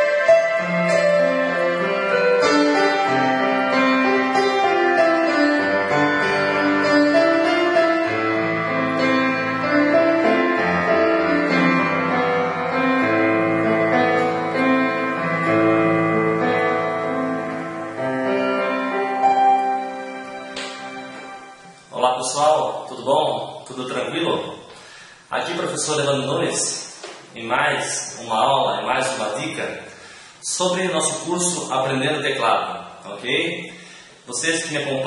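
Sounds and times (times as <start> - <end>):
keyboard melody over chords: 0.0 - 22.2.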